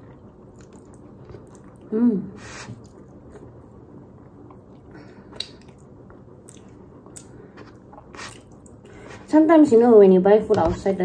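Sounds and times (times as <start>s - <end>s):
mouth sounds of chewing: 0.0s - 1.9s.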